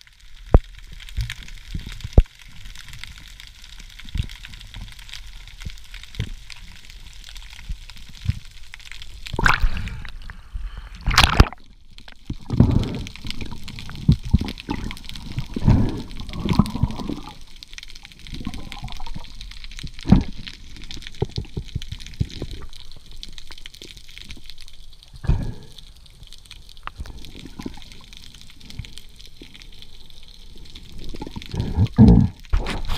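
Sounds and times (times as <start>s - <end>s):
water rushing and gurgling: 9.3s - 23.6s.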